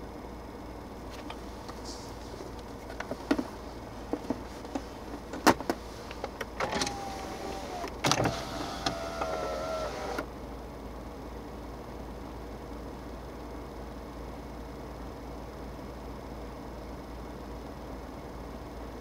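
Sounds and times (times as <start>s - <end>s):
in-cabin hum: 0.0s - 19.0s
power window motor whining: 6.4s - 10.3s.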